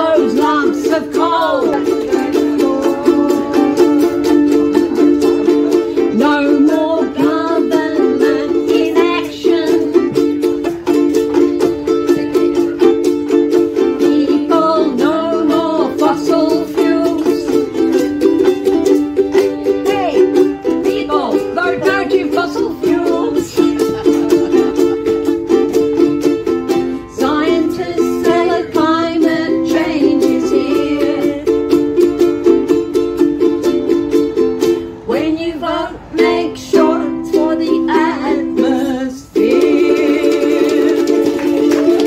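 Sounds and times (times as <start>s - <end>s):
woman singing: 0.0s - 10.4s, 13.7s - 18.0s, 19.6s - 24.6s, 27.0s - 31.8s, 35.0s - 42.0s
ukuleles strummed: 0.0s - 42.0s.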